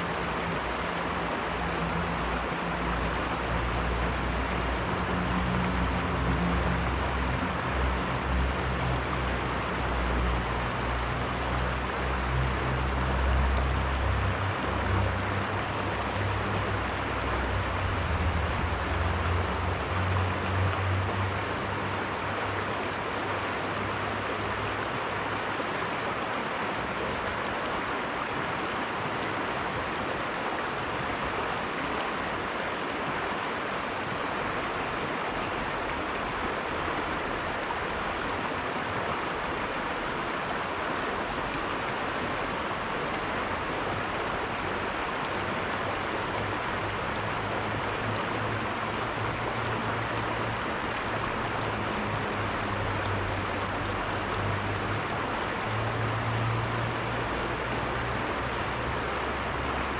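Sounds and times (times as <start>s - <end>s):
river water over rocks: 0.0s - 59.9s.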